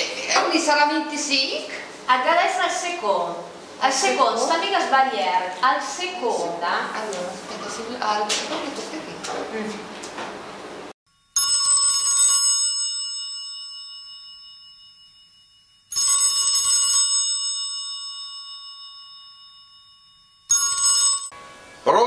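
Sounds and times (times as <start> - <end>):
telephone ringing: 15.9 - 21.4.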